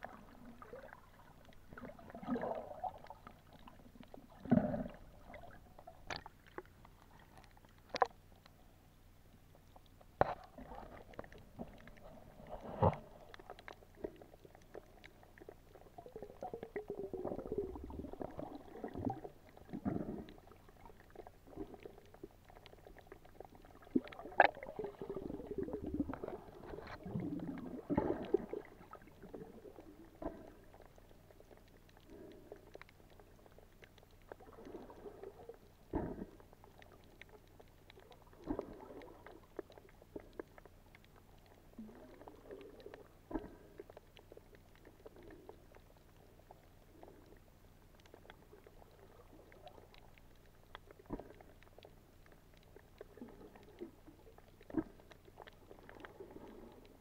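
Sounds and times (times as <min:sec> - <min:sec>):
underwater bubbling and churning: 0:00.0 - 0:57.0
underwater clicks and knocks: 0:04.4 - 0:08.2, 0:09.6 - 0:15.2, 0:23.9 - 0:29.1, 0:35.9 - 0:43.6.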